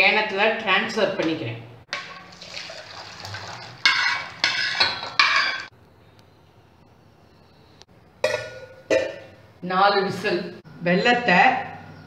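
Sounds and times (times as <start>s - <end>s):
metal pan clanking and scraping: 1.9s - 2.3s, 3.8s - 5.7s, 8.2s - 9.2s.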